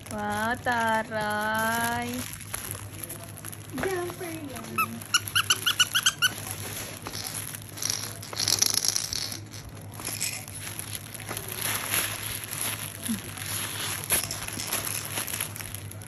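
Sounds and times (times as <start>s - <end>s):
fabric book crinkling: 0.0s - 8.7s, 9.3s - 16.0s.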